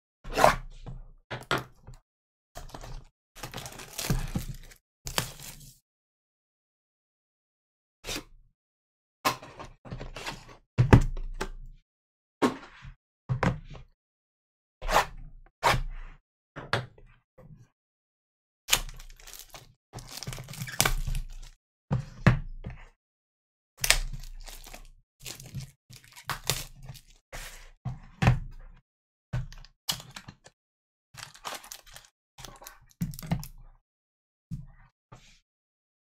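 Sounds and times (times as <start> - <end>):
packaging crinkling: 3.4 - 5.6, 18.7 - 21.5, 24.1 - 27.1, 31.2 - 32.7.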